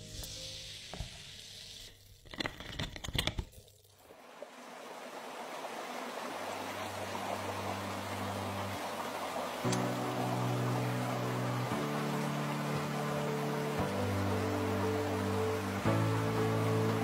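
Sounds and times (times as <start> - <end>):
rushing water: 4.0 - 17.0.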